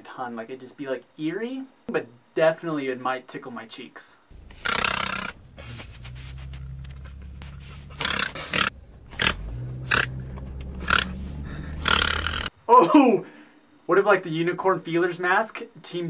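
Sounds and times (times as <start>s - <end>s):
low hum of car running: 4.4s - 12.5s
person's breathy vocal noises: 4.4s - 13.4s.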